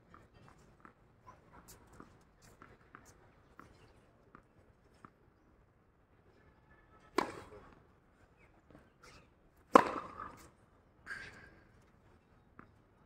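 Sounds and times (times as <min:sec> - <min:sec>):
tennis racket hitting ball: 0:07.2 - 0:07.6, 0:09.7 - 0:10.4.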